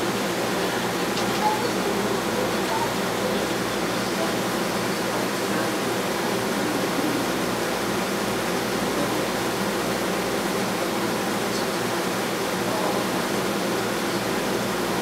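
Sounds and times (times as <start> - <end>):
aquarium pump hum: 0.0 - 15.0.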